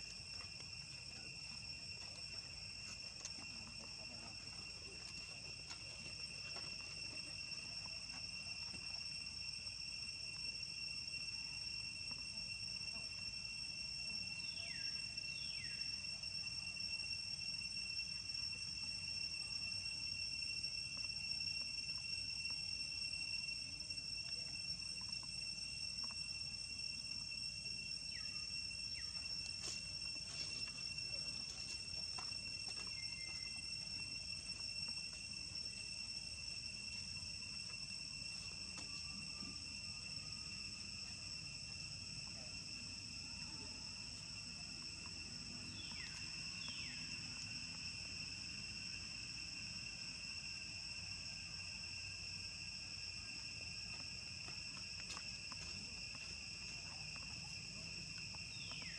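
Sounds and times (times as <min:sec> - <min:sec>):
insects droning: 0:00.0 - 0:58.9
faint chirps: 0:14.2 - 0:16.3, 0:28.0 - 0:34.6, 0:45.5 - 0:47.6, 0:58.5 - 0:58.9.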